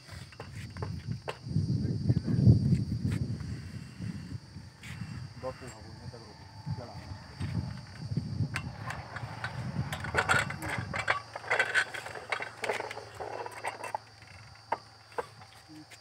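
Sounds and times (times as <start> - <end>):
metal pipe clicks and scraping: 7.8 - 15.6.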